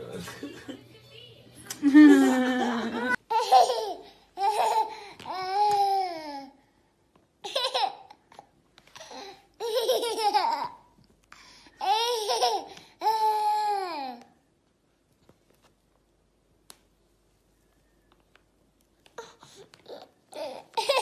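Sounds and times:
toddler laughing and babbling: 2.9s - 6.6s, 7.4s - 11.0s, 11.8s - 14.4s, 19.2s - 21.0s.

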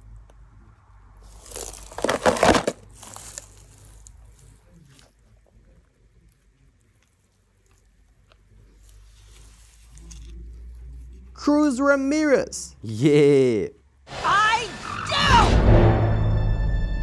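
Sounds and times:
damp sand crunching and crumbling: 1.2s - 10.6s.

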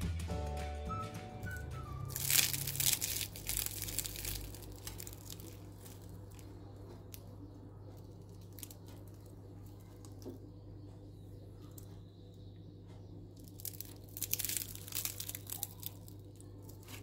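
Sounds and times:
pastry crackling and tearing: 1.4s - 12.0s, 13.3s - 17.0s.

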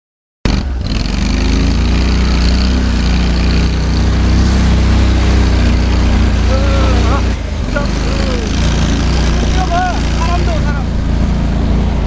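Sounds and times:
vehicle engine droning under load: 0.5s - 12.0s.

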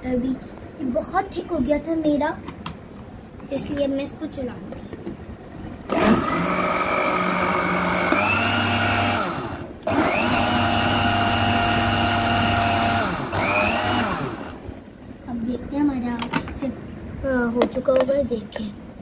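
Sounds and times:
blender motor whining: 5.9s - 14.6s.

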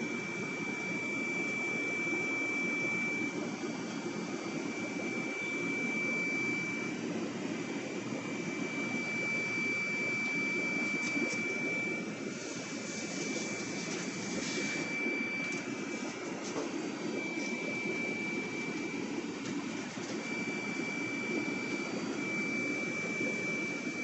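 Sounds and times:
aquarium air pump humming: 0.0s - 24.0s
high-pitched whine: 7.6s - 19.4s, 20.0s - 24.0s.

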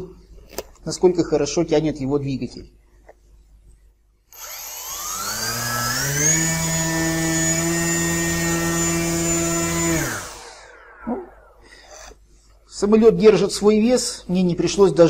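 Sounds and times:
electric motor and propeller whine: 4.3s - 12.1s.

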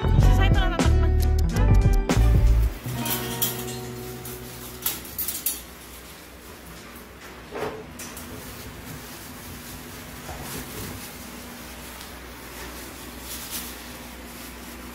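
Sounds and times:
wire dog cage clinking: 2.9s - 5.8s.

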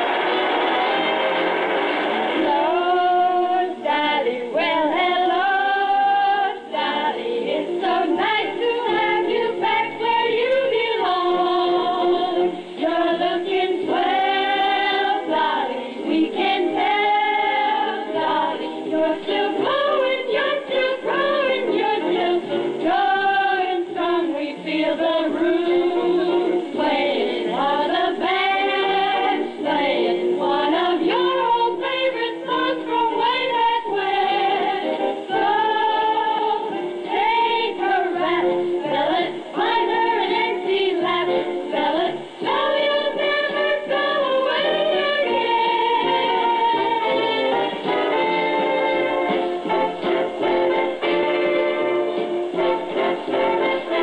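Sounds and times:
instrumental accompaniment: 0.0s - 54.0s
women singing together: 2.3s - 51.5s, 52.6s - 54.0s.

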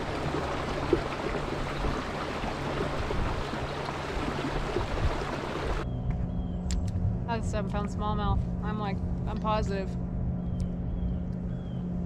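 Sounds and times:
water rushing along kayak hull: 0.0s - 5.8s.

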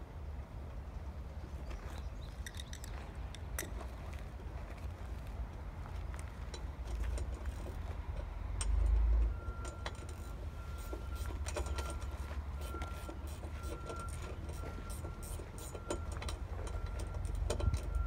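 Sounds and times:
clicks and knocks of hardware: 6.4s - 18.0s
wind noise on microphone: 17.3s - 18.0s.

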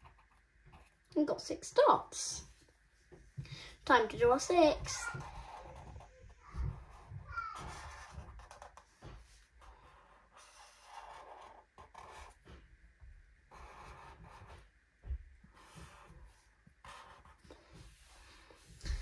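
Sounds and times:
marker pen rubbing on paper: 0.0s - 1.1s, 4.8s - 12.5s, 13.5s - 14.7s, 15.5s - 18.6s.

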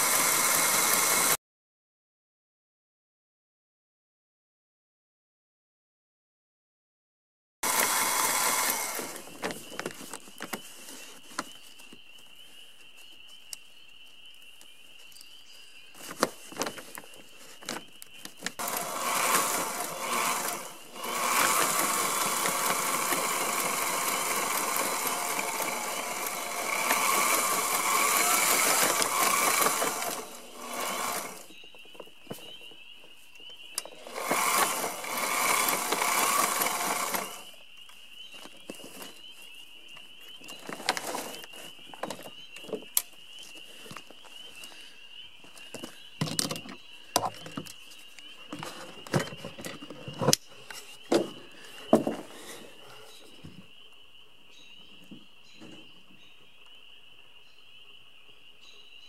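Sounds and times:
sewing machine stitching: 0.0s - 1.4s, 7.6s - 9.2s, 18.6s - 31.5s, 34.0s - 37.5s.

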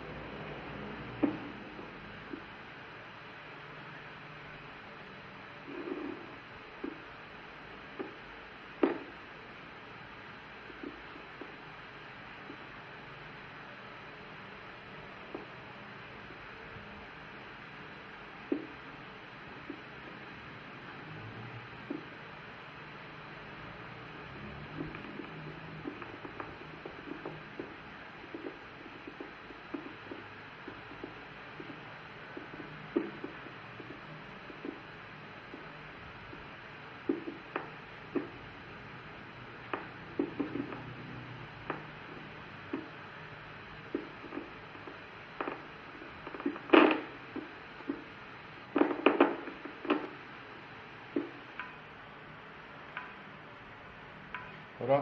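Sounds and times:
steady loudspeaker hiss: 0.0s - 55.0s
irregular random pops: 8.8s - 9.2s, 18.4s - 20.4s, 24.8s - 52.2s
short electronic pops: 8.8s - 9.2s, 36.3s - 38.4s, 43.9s - 50.2s.

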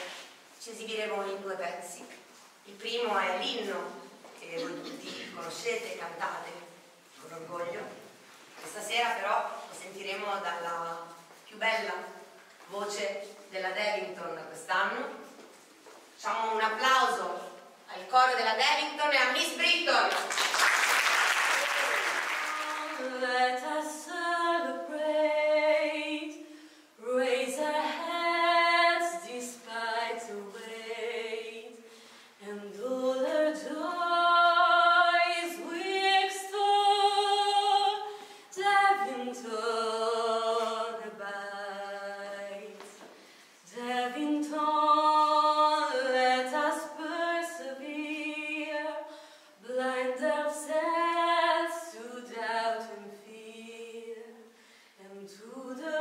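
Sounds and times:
woman and choir singing hymn: 22.0s - 26.4s.

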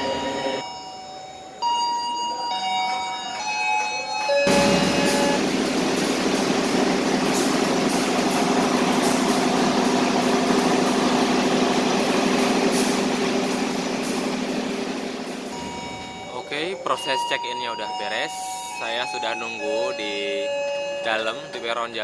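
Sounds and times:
diesel locomotive engine idling: 4.5s - 16.6s.

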